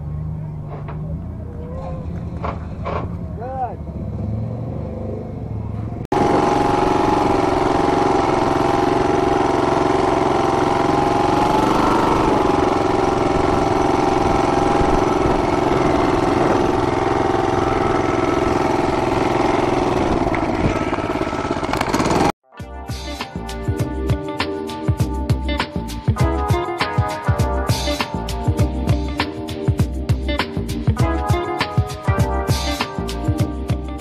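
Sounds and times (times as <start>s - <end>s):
small vehicle engine running: 3.8s - 22.4s.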